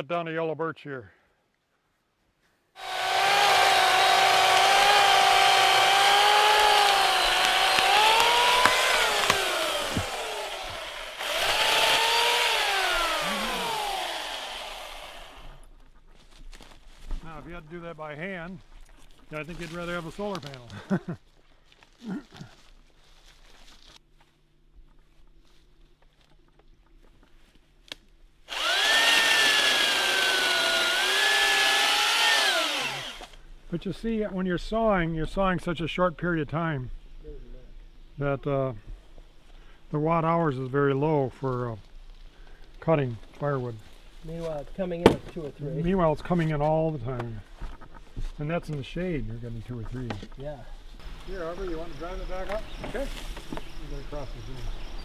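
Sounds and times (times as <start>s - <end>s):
electric chainsaw cutting wood: 2.8s - 15.6s, 28.5s - 33.4s
sharp clicks: 6.8s - 10.2s.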